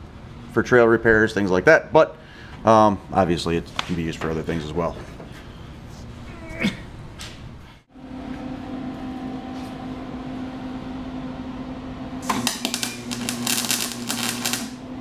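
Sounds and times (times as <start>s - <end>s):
electrical hum: 0.0s - 15.0s
welder arc crackling: 12.2s - 14.9s.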